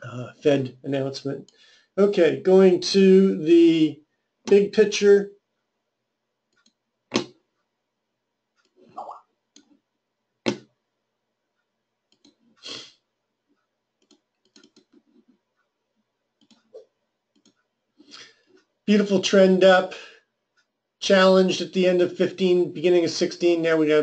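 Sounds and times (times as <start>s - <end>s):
computer mouse clicking: 6.5s - 7.4s, 8.6s - 9.8s, 12.1s - 12.8s, 14.0s - 15.5s, 16.4s - 17.7s.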